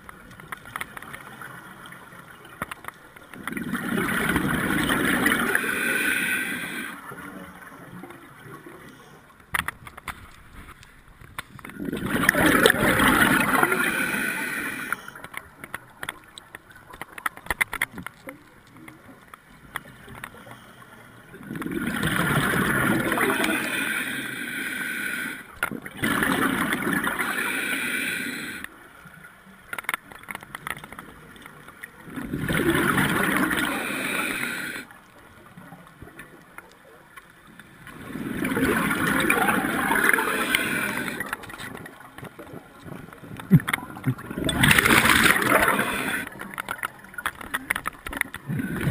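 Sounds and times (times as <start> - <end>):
faint clicks: 0.0 - 3.7, 6.4 - 11.8, 13.5 - 21.8, 23.4 - 25.9, 27.1 - 32.0, 33.2 - 48.9
underwater bubbles from regulator: 3.4 - 5.8, 11.6 - 15.0, 21.4 - 23.9, 25.6 - 27.5, 32.0 - 34.8, 37.9 - 48.9.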